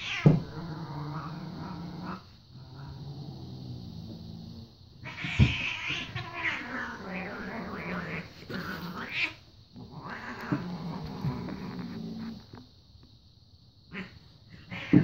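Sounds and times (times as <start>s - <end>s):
cats yowling and screeching: 0.0s - 3.0s, 5.0s - 12.4s, 13.9s - 15.0s
cats growling: 0.0s - 12.8s, 13.8s - 15.0s
thump: 0.2s - 0.5s.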